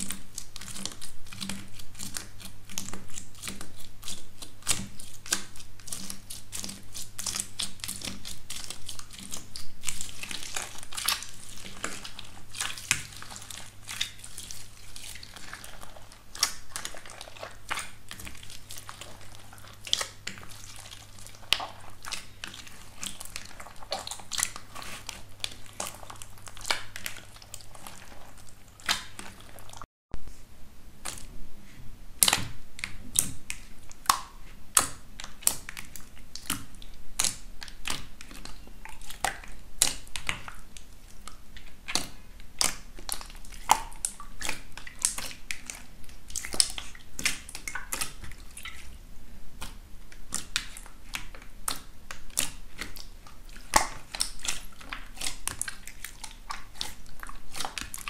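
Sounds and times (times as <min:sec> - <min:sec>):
slime crust crackling: 0:00.0 - 0:29.9, 0:49.6 - 0:58.0
slime squishing: 0:00.0 - 0:30.4, 0:31.0 - 0:58.0.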